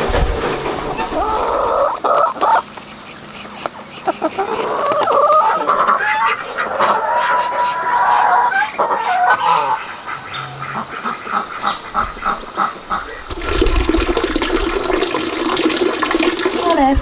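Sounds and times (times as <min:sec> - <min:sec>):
geese honking: 0:01.0 - 0:13.2
ducks quacking: 0:01.0 - 0:13.3
water pouring into plastic bucket: 0:13.3 - 0:17.0.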